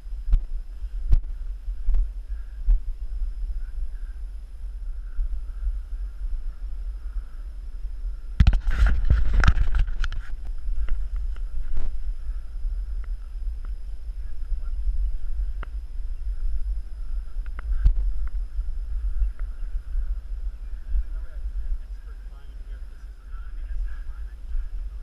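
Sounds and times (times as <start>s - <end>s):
wind rumble: 0.0s - 25.0s
camera handling noise: 8.4s - 11.9s
branches scraping against camera: 8.4s - 12.0s.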